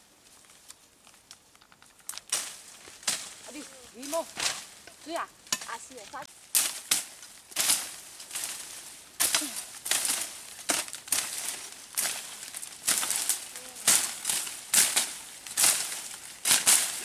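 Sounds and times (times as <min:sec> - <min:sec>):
leaves rustling underfoot: 0:00.0 - 0:17.0.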